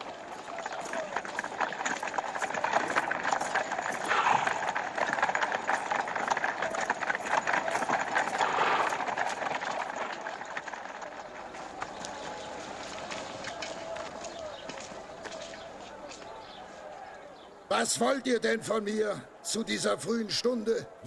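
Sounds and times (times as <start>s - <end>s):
hooves clip-clopping on stone: 0.0s - 17.6s
crowd footsteps: 0.0s - 21.0s.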